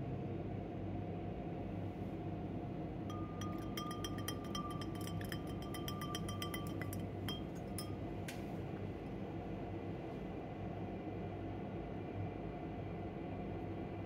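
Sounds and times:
spoon stirring in glass beaker: 3.1 - 8.1.

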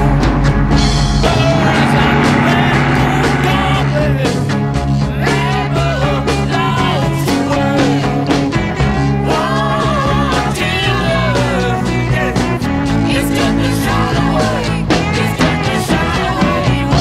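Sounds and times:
rock music: 0.0 - 17.0.

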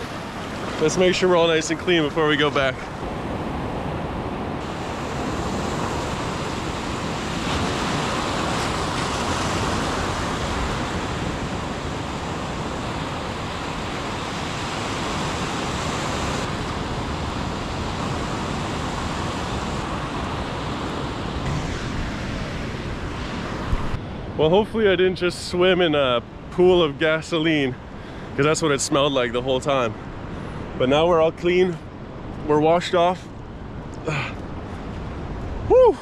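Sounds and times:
sea surf washing ashore: 0.0 - 36.0
wind on microphone: 2.8 - 24.8.

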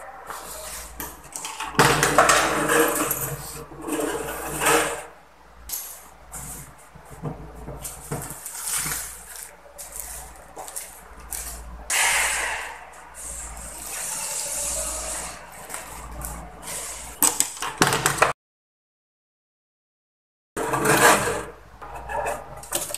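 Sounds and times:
plastic wrapper rustling: 7.8 - 11.7
plastic crinkle: 7.8 - 11.8.

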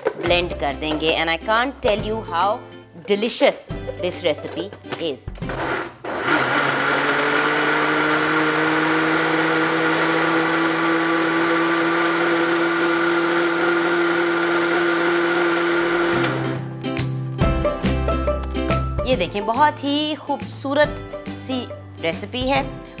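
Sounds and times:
blender motor running: 5.4 - 16.6.

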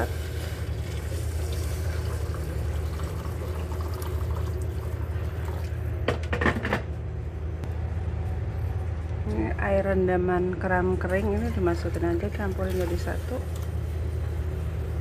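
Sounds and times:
water pouring into a metal pot: 0.0 - 5.7
low hum: 0.0 - 15.0.

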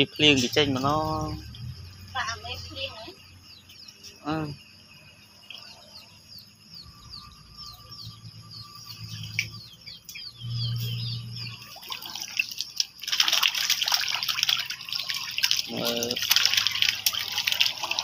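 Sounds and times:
high falling chirps: 0.0 - 13.0
fish splashing in water: 11.2 - 18.0.

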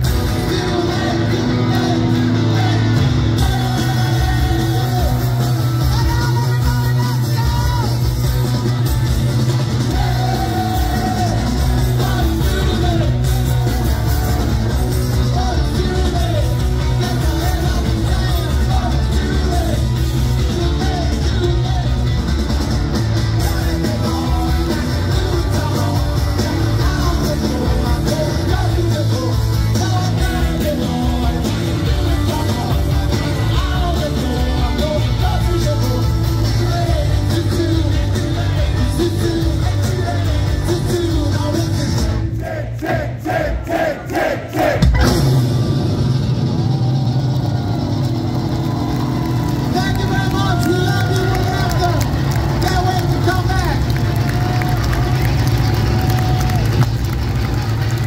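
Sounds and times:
person singing: 0.0 - 8.0, 9.8 - 14.6, 15.2 - 22.1, 23.3 - 42.1
garage rock band playing: 0.0 - 58.0.

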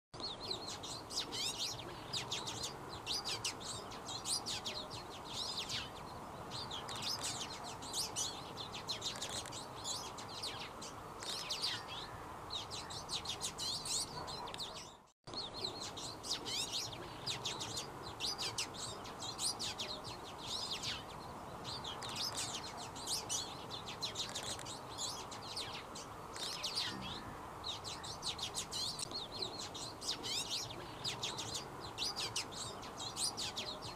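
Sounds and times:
bird twittering song: 0.2 - 33.9
steady background hiss: 15.4 - 33.9.

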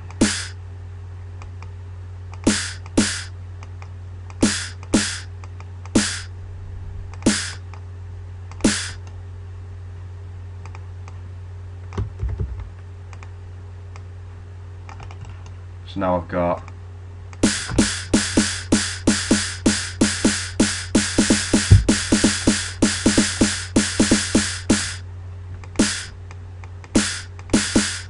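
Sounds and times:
steady low hum: 0.0 - 28.0
electronic snare drum hits: 0.2 - 0.6, 2.4 - 3.3, 4.4 - 5.3, 6.0 - 6.3, 7.2 - 7.6, 8.6 - 9.0, 17.4 - 25.0, 25.8 - 26.1, 27.0 - 28.0
soft knocks: 21.7 - 22.0.

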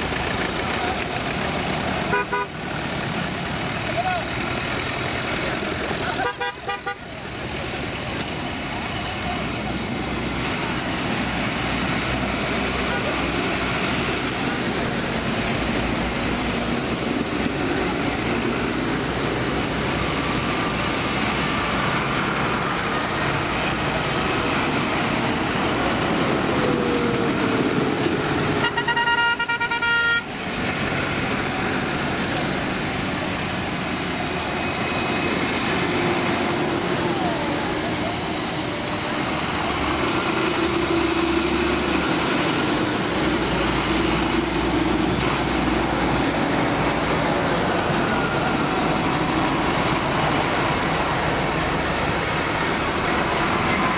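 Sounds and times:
tractor diesel engines: 0.0 - 53.9
horn sounding: 2.1 - 2.6, 6.2 - 7.1, 28.6 - 30.3.

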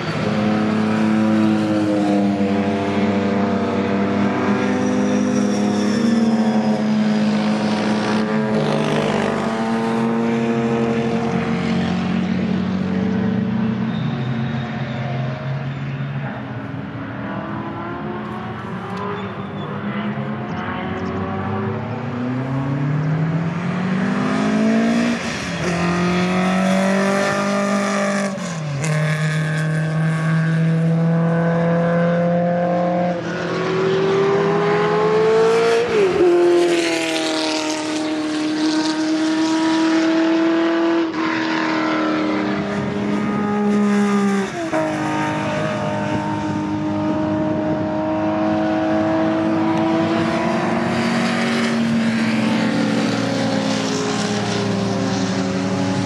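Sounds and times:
race car engines accelerating: 0.0 - 56.0.

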